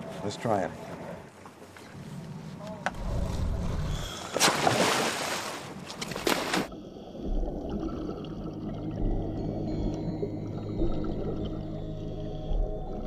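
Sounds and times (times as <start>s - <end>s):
diver splashing into water: 4.2s - 6.7s
underwater bubbles rumbling: 6.7s - 13.0s.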